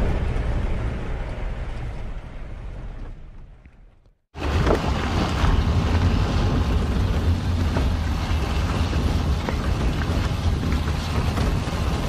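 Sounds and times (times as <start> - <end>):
vehicle rumbling on gravel: 0.0 - 12.0
wind on microphone: 4.4 - 12.0.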